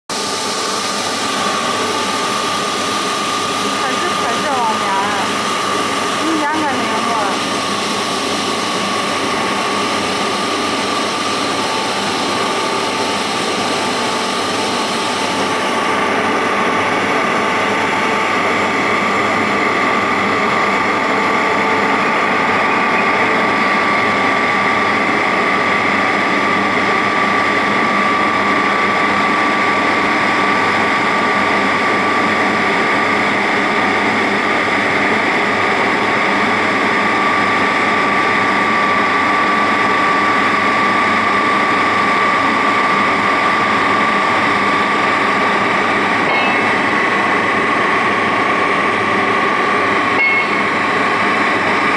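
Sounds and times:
machine running with whine: 0.1s - 51.9s.

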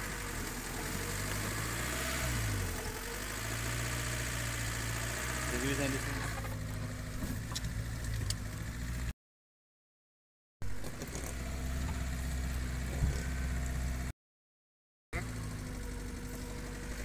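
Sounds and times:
car engine running inside cabin: 0.0s - 9.1s.

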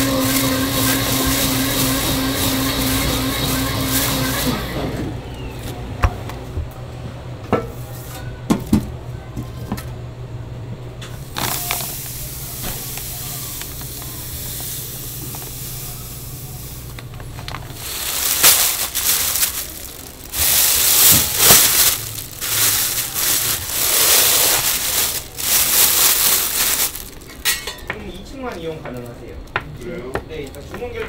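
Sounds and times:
steady hiss with low hum: 10.0s - 31.0s
plastic bag crinkling: 11.3s - 14.4s, 15.2s - 27.6s.

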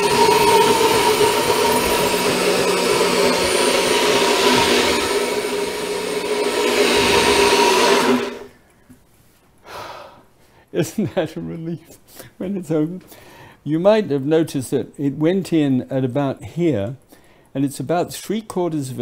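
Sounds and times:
blender motor whine: 0.0s - 8.6s.

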